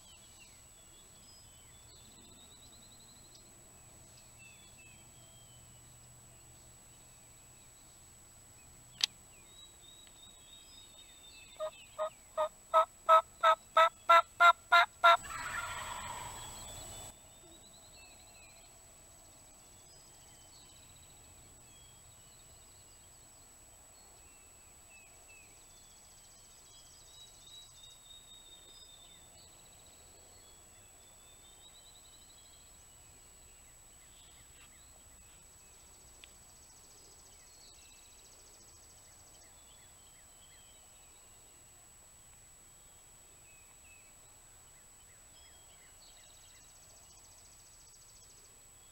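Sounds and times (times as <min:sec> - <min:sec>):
faint songbird chirps: 0:00.0 - 0:48.9
sharp click: 0:09.0 - 0:09.2
turkey gobble: 0:11.6 - 0:16.7
turkey yelping: 0:12.4 - 0:16.5.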